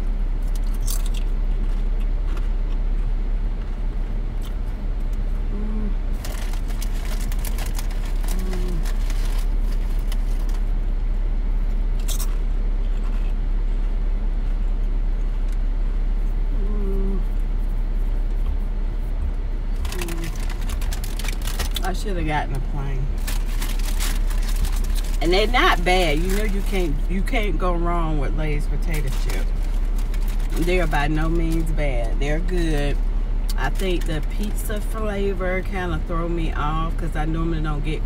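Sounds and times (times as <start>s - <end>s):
car engine idling: 0.0s - 38.0s
chips crunching in mouth: 0.4s - 3.1s, 6.1s - 10.7s, 12.0s - 13.3s, 19.8s - 21.8s, 23.2s - 26.7s, 29.0s - 31.0s
chip bag crackling: 6.2s - 10.7s, 19.8s - 22.0s, 23.2s - 27.0s, 29.0s - 31.0s.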